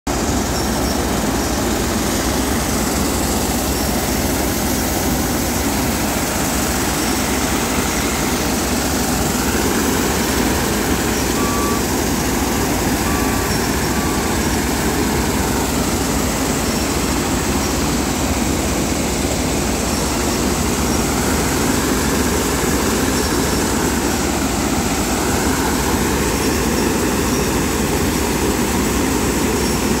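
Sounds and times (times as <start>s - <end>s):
combine harvester running: 0.1s - 30.0s.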